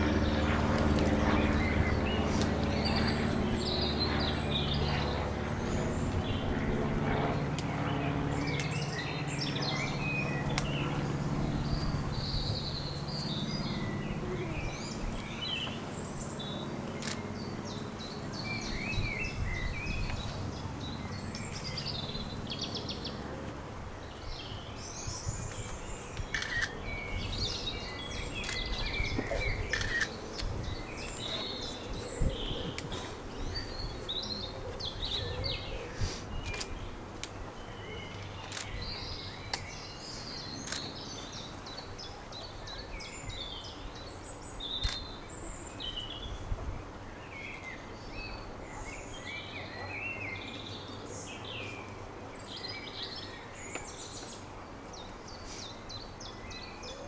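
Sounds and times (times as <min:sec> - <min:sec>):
birds chirping and singing: 0:24.0 - 0:37.0, 0:37.6 - 0:57.0.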